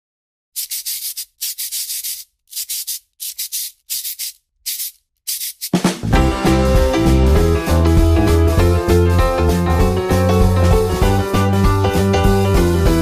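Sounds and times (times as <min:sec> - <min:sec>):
pencil scratching on paper: 0:00.6 - 0:05.8
music: 0:05.7 - 0:13.0.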